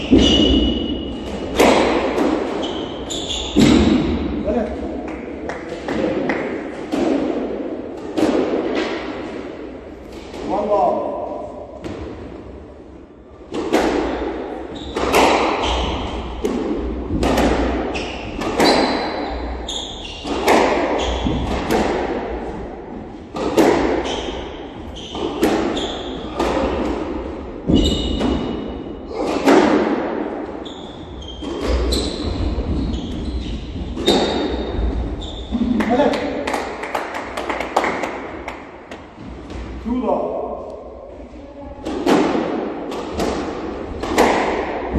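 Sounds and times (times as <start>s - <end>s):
squash ball hits echoing: 0.0s - 4.4s, 5.1s - 11.0s, 13.4s - 39.9s, 41.8s - 44.9s
shoes squeaking on wooden floor: 2.6s - 3.9s, 24.0s - 26.4s, 27.7s - 28.4s, 30.6s - 35.6s.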